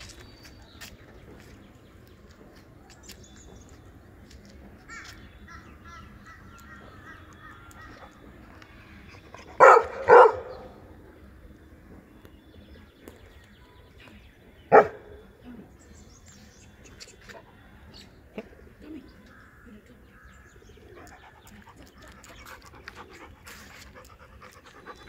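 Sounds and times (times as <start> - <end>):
dog barking: 9.6 - 10.8, 14.7 - 15.1.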